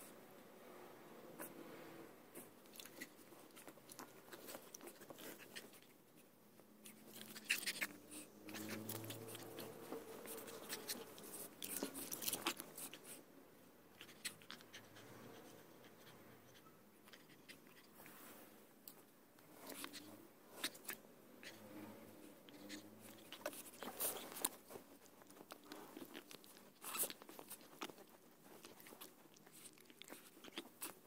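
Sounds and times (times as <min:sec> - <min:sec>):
puppy rustling and scuffling: 0:02.3 - 0:13.3, 0:14.0 - 0:31.0.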